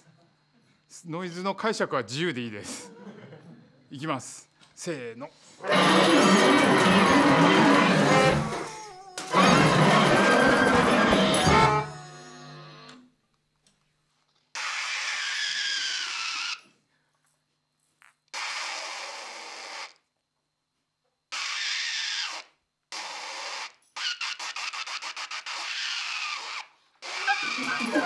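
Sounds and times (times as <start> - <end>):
ensemble playing harsh noise bursts: 5.6 - 8.6, 9.3 - 12.9.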